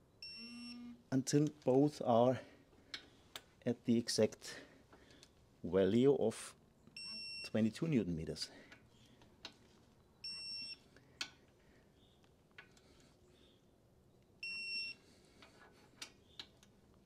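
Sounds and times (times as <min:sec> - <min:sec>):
short high electronic beeps: 0:00.2 - 0:01.0
faint clicks of tool work: 0:02.7 - 0:03.5, 0:04.9 - 0:05.4, 0:08.7 - 0:09.8, 0:11.1 - 0:11.6, 0:12.2 - 0:13.2, 0:15.4 - 0:16.8.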